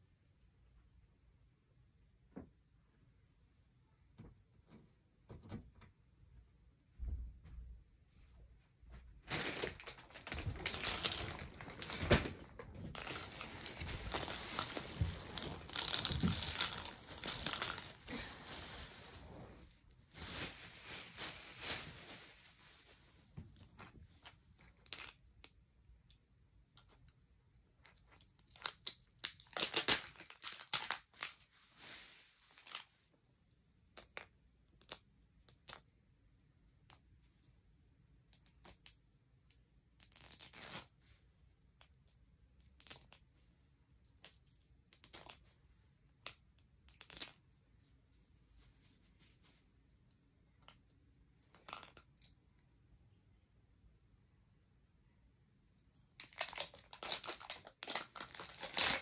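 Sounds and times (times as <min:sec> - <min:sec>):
plastic wrapper ripping: 0:09.3 - 0:19.2, 0:28.1 - 0:32.9, 0:56.2 - 0:59.0
plastic bag crinkling: 0:09.3 - 0:23.0, 0:28.5 - 0:32.9, 0:56.2 - 0:59.0.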